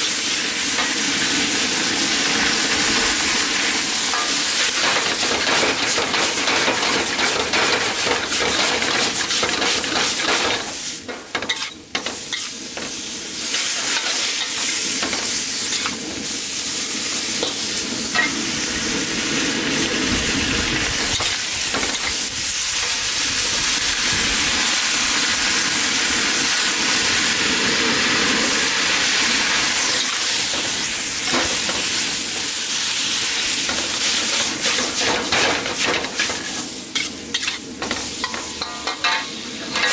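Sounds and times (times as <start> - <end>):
vegetables sizzling in a wok: 0.0 - 39.9
scrapes and clatters in a wok: 4.1 - 16.0, 33.2 - 39.9.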